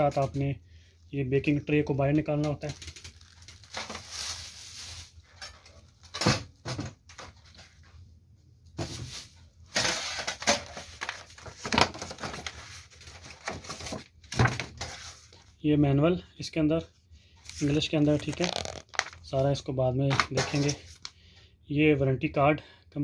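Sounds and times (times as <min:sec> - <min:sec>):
cardboard packaging rustling: 0:02.8 - 0:05.4, 0:09.8 - 0:15.3, 0:17.5 - 0:19.4.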